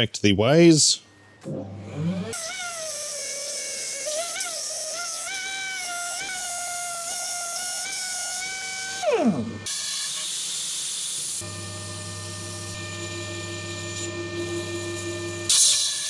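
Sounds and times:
belt sander whining: 7.7s - 9.8s
lathe humming: 8.5s - 9.7s.

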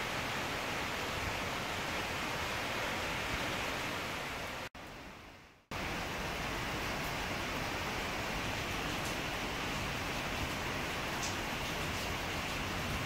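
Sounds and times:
gusting wind: 0.0s - 13.0s
steady rain: 0.0s - 13.0s.

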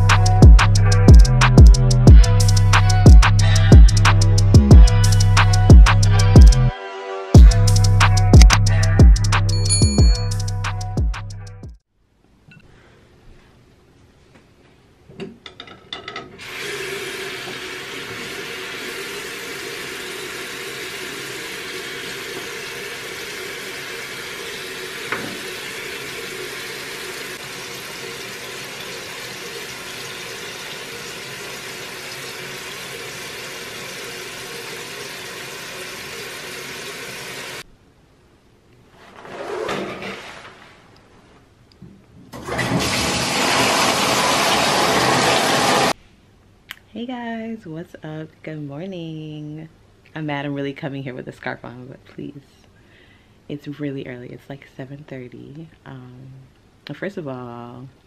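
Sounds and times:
bathtub faucet water rushing: 16.4s - 37.7s, 42.4s - 46.0s
sink tap running water: 16.4s - 37.7s, 42.4s - 46.0s.

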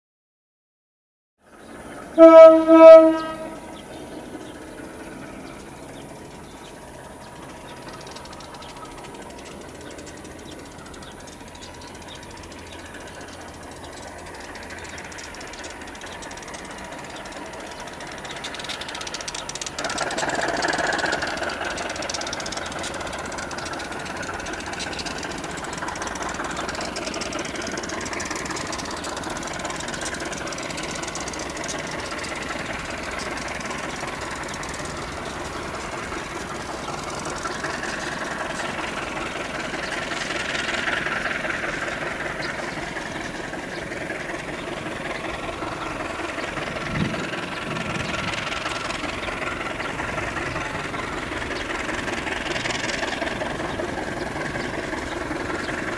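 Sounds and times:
train approaching: 1.4s - 55.9s
locomotive horn blasts: 2.1s - 3.8s.

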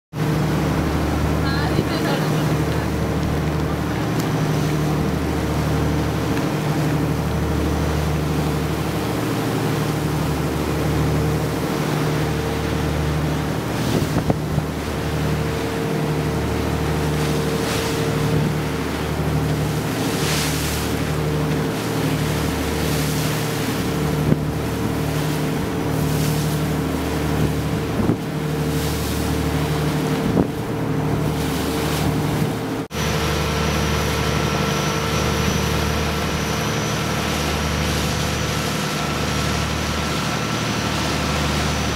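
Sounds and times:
boat engine droning: 0.1s - 41.9s
water rushing past hull: 0.1s - 41.9s
wind on microphone: 13.7s - 14.7s, 27.2s - 29.0s, 29.6s - 32.6s.

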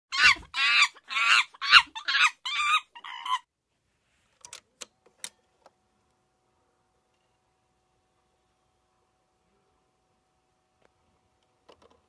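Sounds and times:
wavering squawk-like calls: 0.1s - 3.5s.

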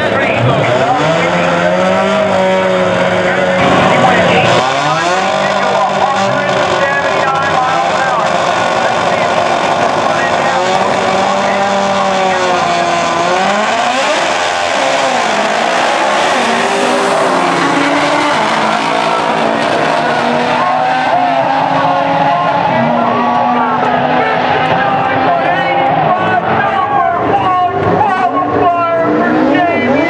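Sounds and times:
car racing alongside: 0.0s - 30.0s
pickup engine at full throttle: 0.0s - 30.0s.

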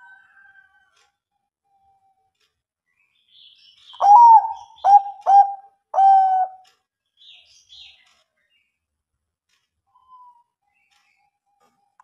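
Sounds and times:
dove cooing: 4.0s - 6.6s.

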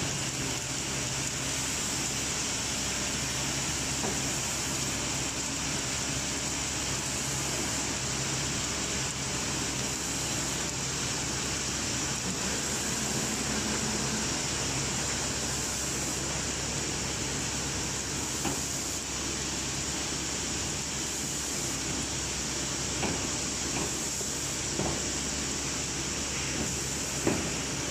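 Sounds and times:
machine droning: 0.0s - 27.9s.

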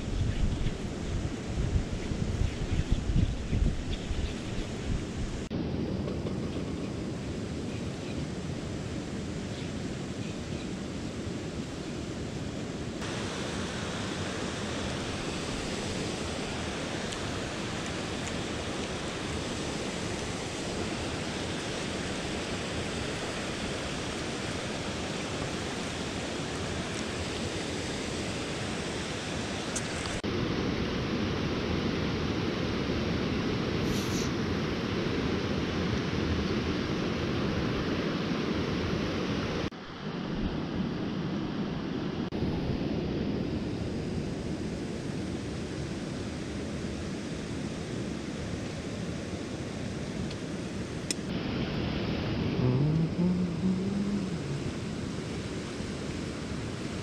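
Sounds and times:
stream rushing over rocks: 12.9s - 40.0s, 45.8s - 57.0s.

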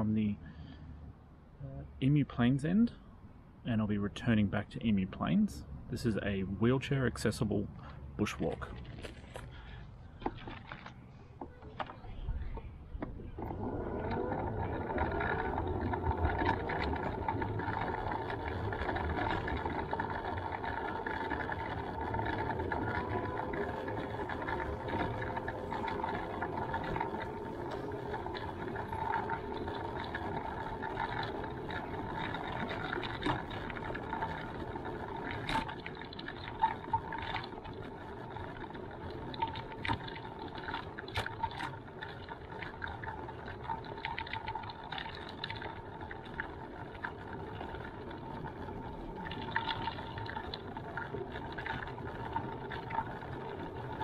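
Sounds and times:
small electric motor whine: 13.3s - 39.8s.

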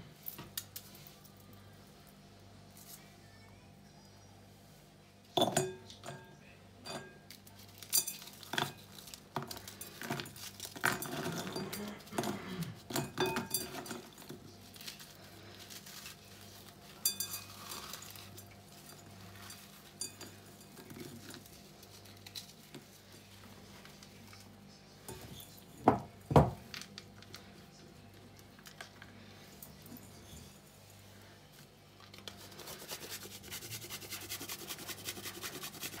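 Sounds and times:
clinks against glass bowl: 5.4s - 7.2s, 17.0s - 17.5s, 20.0s - 20.8s.

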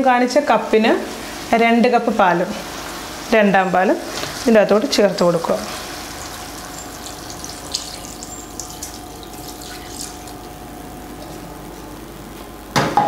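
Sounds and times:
liquid pouring into a pan: 4.1s - 10.6s.

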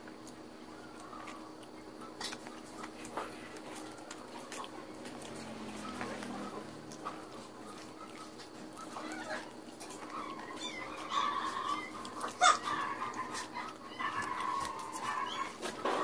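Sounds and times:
animal crying: 4.4s - 15.8s.

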